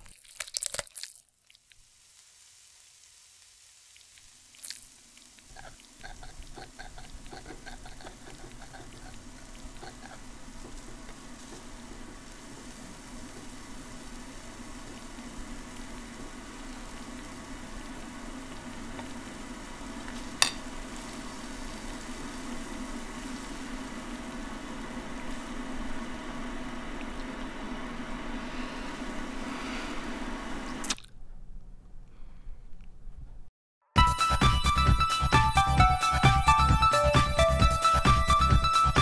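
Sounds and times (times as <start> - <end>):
steady hiss: 1.4 - 31.0.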